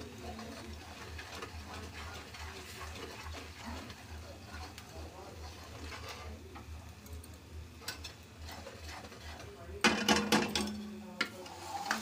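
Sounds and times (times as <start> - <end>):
metal spoon scraping a pan: 0.0 - 6.7, 7.8 - 12.0
spoon clanking on metal pan: 7.8 - 12.0.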